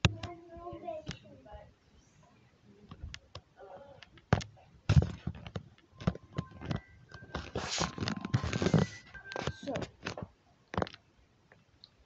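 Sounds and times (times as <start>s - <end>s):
tablet handling taps and knocks: 2.9s - 11.0s.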